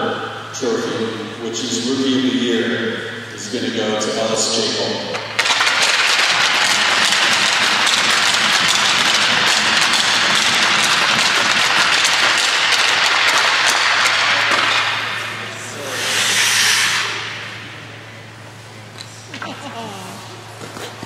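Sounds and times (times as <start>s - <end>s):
crowd applauding: 5.4s - 14.6s
ice skates scraping to a stop: 20.6s - 21.0s.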